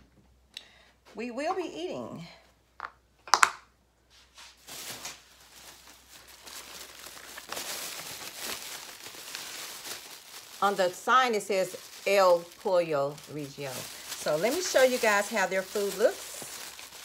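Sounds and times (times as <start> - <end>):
plastic bag rustling: 4.2 - 17.0.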